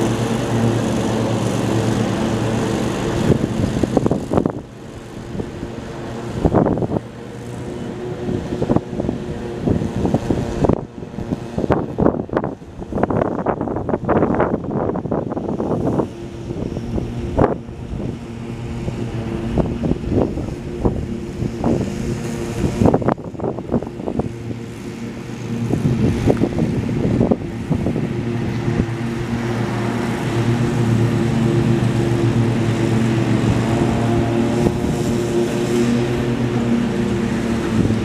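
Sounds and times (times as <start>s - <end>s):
locomotive diesel engine droning: 0.0s - 38.0s
wind thumps on microphone: 25.6s - 29.0s.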